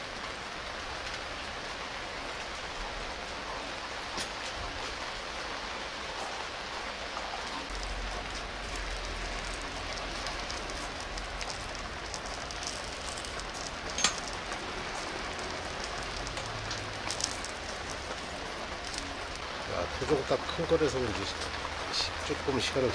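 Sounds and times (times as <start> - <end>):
charcoal clinking in clay jar: 9.5 - 18.0.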